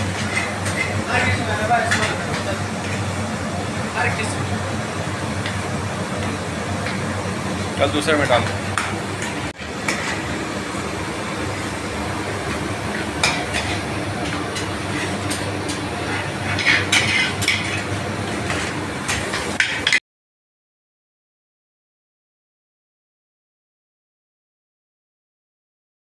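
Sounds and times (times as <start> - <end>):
plates and utensils clinking: 0.0 - 3.0, 13.1 - 20.0
steady kitchen hum: 0.0 - 20.0.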